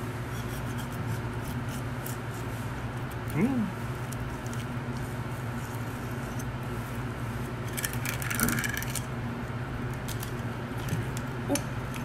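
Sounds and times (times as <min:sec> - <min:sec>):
steady low hum: 0:00.0 - 0:12.0
knife scraping along fish bone: 0:00.3 - 0:02.5.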